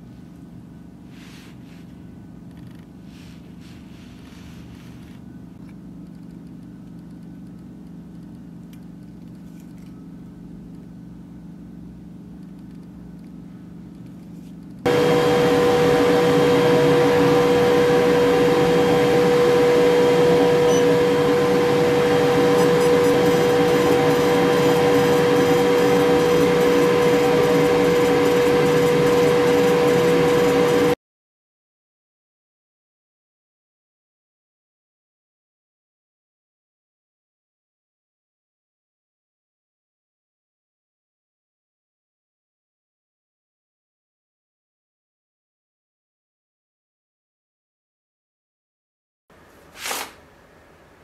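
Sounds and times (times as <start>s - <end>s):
faint low room hum: 0.0s - 14.9s, 49.3s - 51.0s
laser engraver machine whir: 14.9s - 31.0s.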